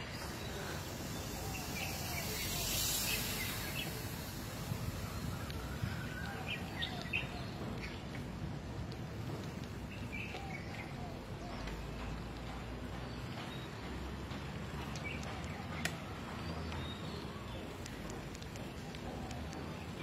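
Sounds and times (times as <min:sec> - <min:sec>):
bicycle tyre rumble: 0:00.0 - 0:10.4.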